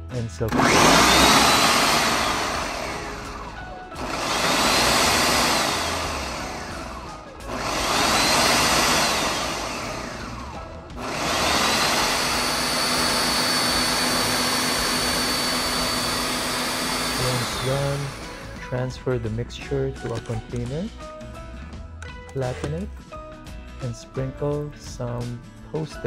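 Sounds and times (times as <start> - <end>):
blender motor whining: 0.4 - 18.6.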